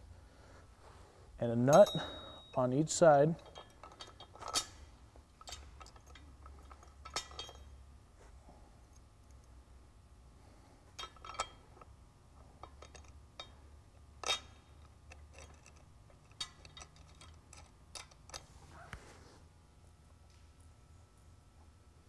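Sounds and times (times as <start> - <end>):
metal washer and nut clinking: 1.6 - 7.8, 10.9 - 11.9, 12.6 - 13.6, 14.2 - 18.9.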